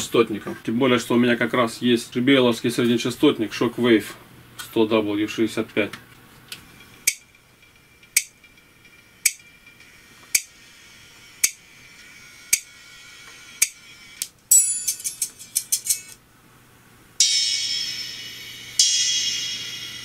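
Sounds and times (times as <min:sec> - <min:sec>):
treble-only music ticks: 0:06.8 - 0:10.6, 0:11.4 - 0:12.7.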